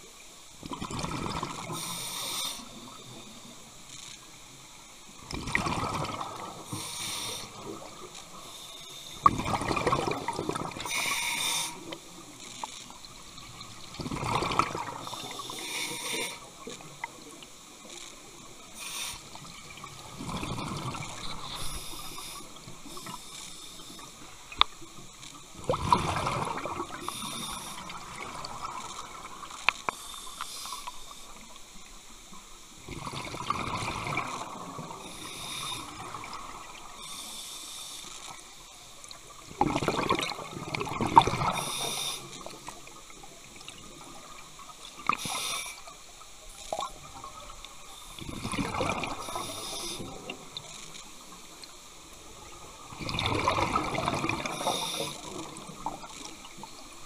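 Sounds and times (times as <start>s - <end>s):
exhaled air bubbling underwater: 0.6s - 3.6s, 5.2s - 8.4s, 9.2s - 31.5s, 32.8s - 37.4s, 38.2s - 57.0s
regulator hiss: 1.6s - 4.9s, 6.6s - 9.3s, 10.7s - 13.8s, 15.0s - 19.8s, 21.2s - 25.1s, 26.9s - 32.8s, 34.4s - 38.6s, 41.4s - 44.4s, 45.0s - 48.3s, 49.1s - 52.8s, 54.4s - 55.9s.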